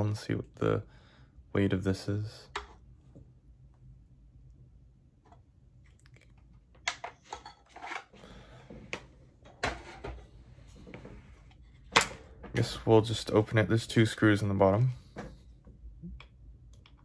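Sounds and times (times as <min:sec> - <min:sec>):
objects knocking and scraping on desk: 0:08.7 - 0:11.2.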